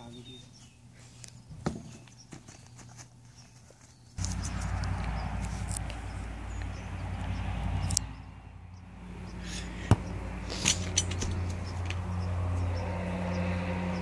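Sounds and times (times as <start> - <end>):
low motor hum: 4.2 - 14.0.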